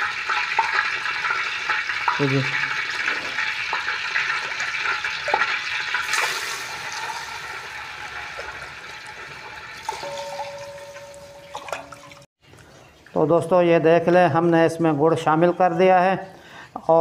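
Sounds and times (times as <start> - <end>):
water sizzling in hot oil: 0.0 - 10.1.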